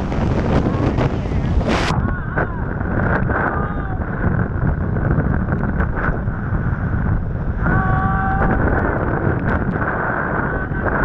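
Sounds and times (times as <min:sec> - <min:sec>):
water rushing and spraying: 0:00.0 - 0:04.4
wind buffeting microphone: 0:00.0 - 0:11.0.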